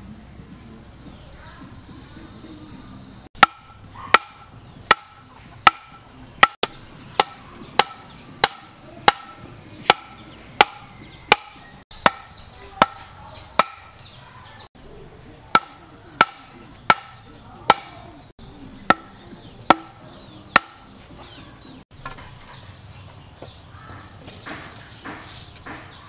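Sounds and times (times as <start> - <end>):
machete chopping bamboo: 3.4 - 14.0, 15.5 - 18.1, 18.8 - 21.0
bamboo ramming stakes into ground: 3.4 - 14.1, 15.5 - 18.1, 18.8 - 21.0, 23.9 - 26.0.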